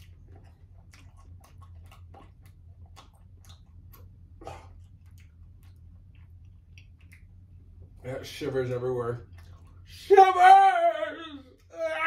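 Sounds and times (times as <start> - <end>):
mouth clicks and smacks: 0.0 - 8.0
people chewing: 0.0 - 10.3
steady low hum: 0.0 - 12.0.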